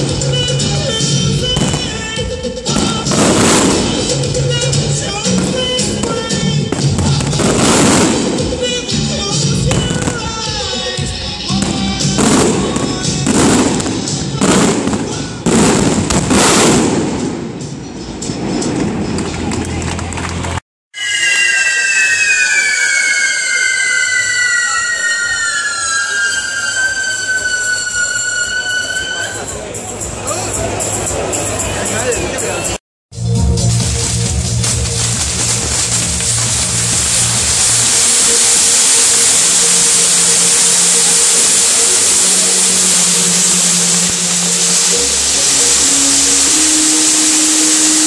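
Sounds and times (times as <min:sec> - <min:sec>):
fireworks bursting overhead: 0:00.0 - 0:30.1, 0:33.5 - 0:48.0
sharp crackles: 0:33.6 - 0:48.0.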